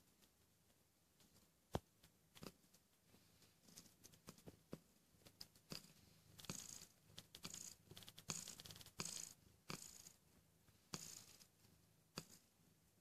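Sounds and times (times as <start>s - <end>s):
faint cat purr: 0.0s - 13.0s.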